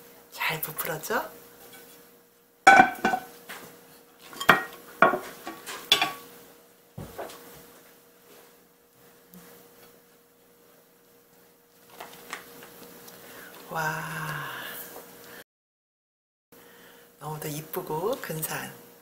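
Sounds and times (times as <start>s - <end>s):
pot and plate knocking: 2.7s - 3.3s, 4.4s - 5.3s.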